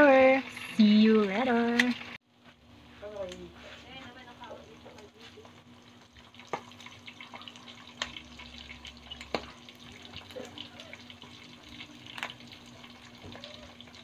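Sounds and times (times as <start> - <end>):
meat sizzling in hot oil: 4.1 - 14.0.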